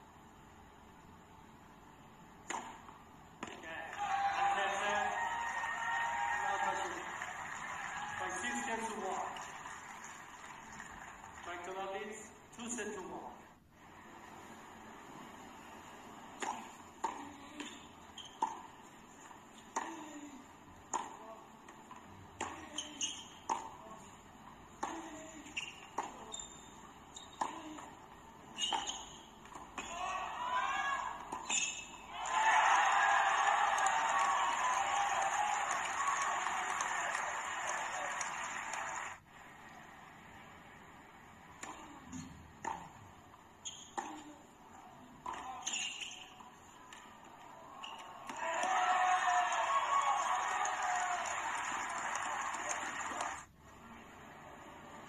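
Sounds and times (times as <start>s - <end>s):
tennis serve struck: 2.4s - 3.6s
tennis ball bouncing on court: 2.4s - 4.0s, 16.3s - 20.2s, 20.8s - 24.1s, 24.7s - 30.2s, 31.0s - 32.1s, 41.5s - 44.4s, 45.2s - 48.9s
crowd applause and cheering: 3.8s - 11.6s, 32.1s - 39.3s, 48.2s - 53.5s.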